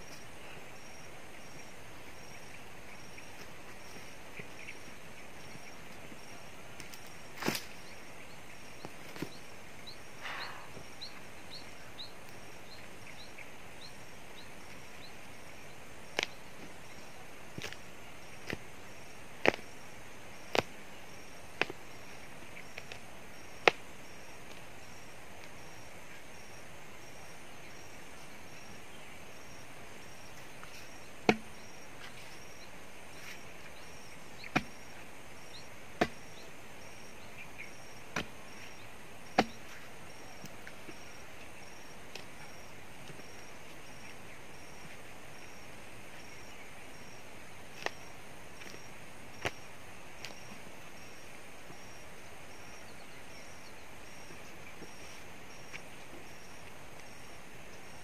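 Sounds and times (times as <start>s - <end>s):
hand tool chopping tree stump: 31.2s - 31.5s, 34.5s - 34.8s, 36.0s - 36.3s, 38.1s - 38.4s, 39.3s - 39.7s.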